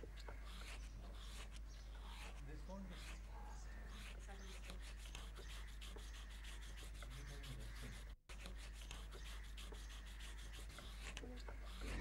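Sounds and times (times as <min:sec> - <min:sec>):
sanding strokes on wood: 0:00.4 - 0:12.0.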